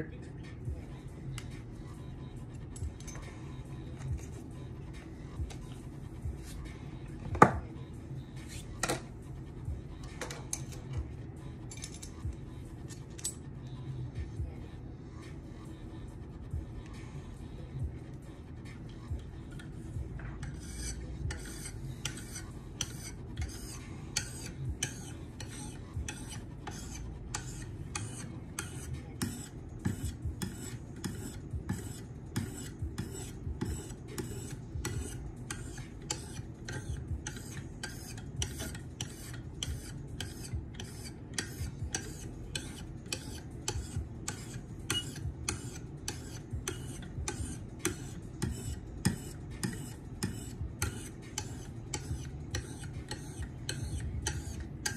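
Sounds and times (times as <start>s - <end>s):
sharpening stone scraping knife edge: 20.4s - 54.9s.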